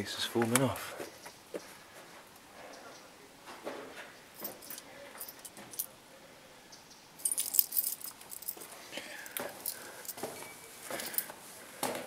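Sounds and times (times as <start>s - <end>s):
metallic jangling and clicking: 4.4s - 5.9s, 7.2s - 8.7s.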